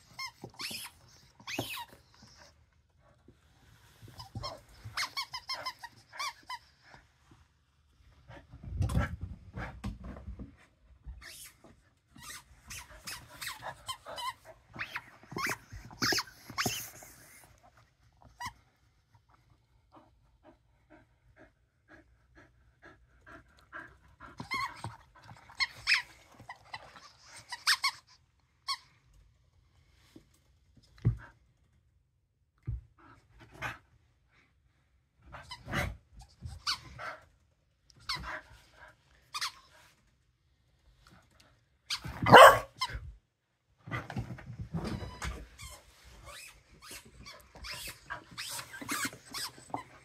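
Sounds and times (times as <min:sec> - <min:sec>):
squeaky toy squeaks: 0:00.0 - 0:02.4, 0:04.2 - 0:06.7, 0:12.2 - 0:17.0, 0:25.5 - 0:28.8, 0:45.1 - 0:50.0
dog panting: 0:19.9 - 0:25.6.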